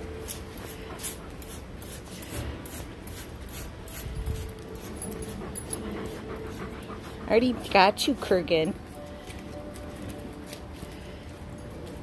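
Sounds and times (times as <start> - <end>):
brush scratching through dog fur: 0.2 - 8.7.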